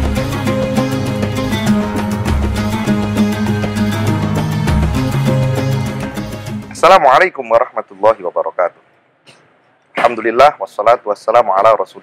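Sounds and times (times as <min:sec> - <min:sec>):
instrumental theme music with beat: 0:00.0 - 0:06.8.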